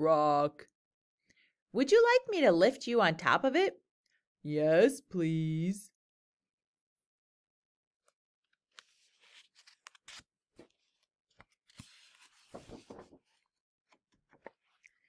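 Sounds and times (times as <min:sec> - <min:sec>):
paper page rustling: 0:08.7 - 0:13.5.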